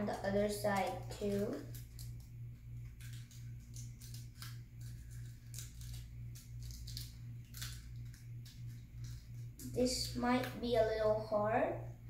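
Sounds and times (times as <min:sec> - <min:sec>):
steady low hum: 0:00.0 - 0:12.0
paper crinkling and rustling: 0:00.2 - 0:09.6.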